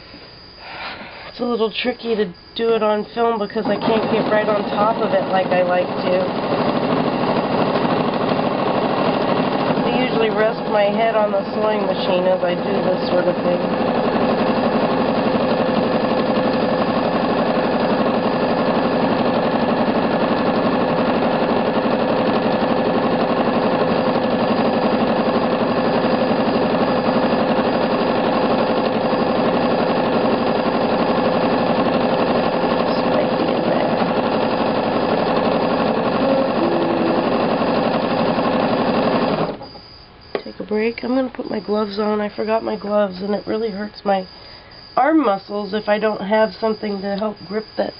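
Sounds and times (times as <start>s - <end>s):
sewing machine running: 3.3s - 40.3s.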